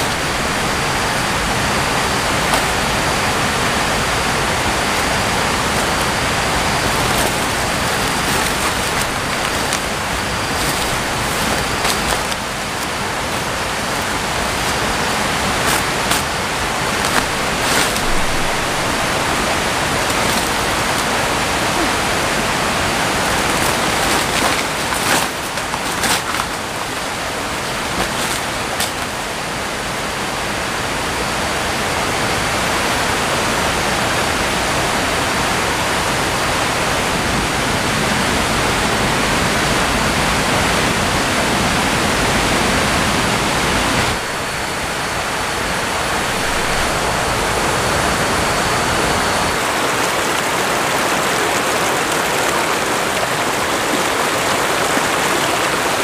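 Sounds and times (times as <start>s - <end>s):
tarp and leaves rustling: 0.0s - 31.0s, 43.9s - 56.0s.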